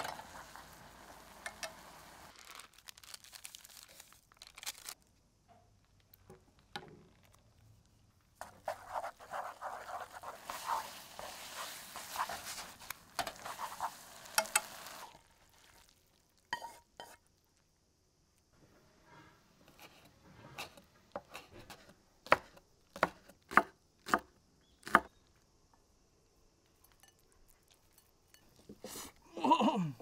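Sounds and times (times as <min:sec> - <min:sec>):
noodles stirred in pan: 0:00.0 - 0:02.7, 0:08.4 - 0:17.3
noodles sizzling in pan: 0:00.0 - 0:05.0, 0:08.4 - 0:17.5.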